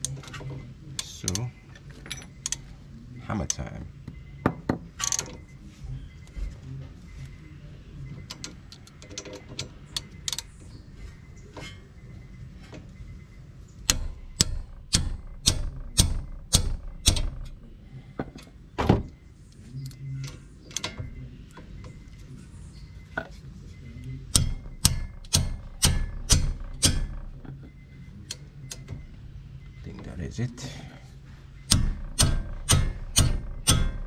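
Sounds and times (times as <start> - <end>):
ratchet wrench clicking: 13.9 - 17.6, 24.3 - 27.3, 31.7 - 34.0.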